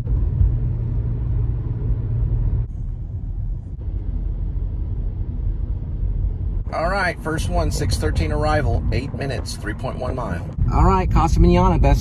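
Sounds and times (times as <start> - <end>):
car interior rumble: 0.0 - 12.0
low hum: 0.0 - 12.0.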